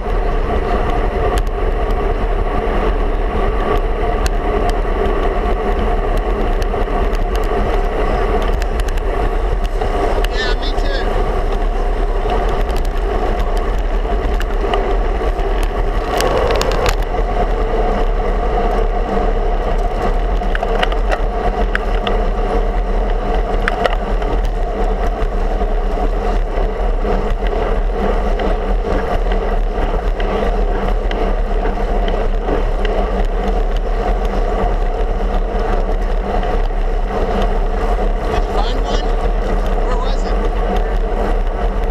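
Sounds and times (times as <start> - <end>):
road noise rumble: 0.0 - 41.9
wind rush: 8.7 - 21.6
steady hum: 15.0 - 19.8.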